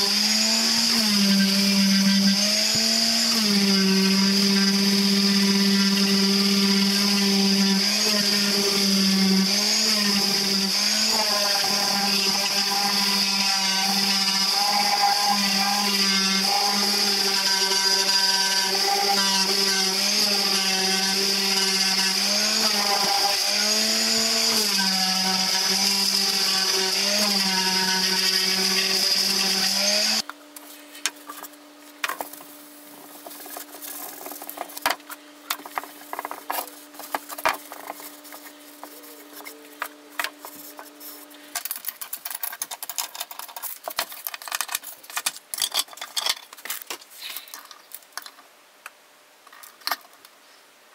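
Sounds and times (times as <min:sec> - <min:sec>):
orbital sander whining: 0:00.0 - 0:30.2.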